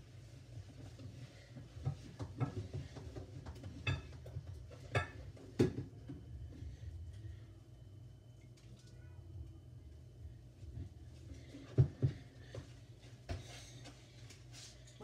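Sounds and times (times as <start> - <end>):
dishes clinking in a steel sink: 3.7 - 5.8
low hum: 5.9 - 13.2.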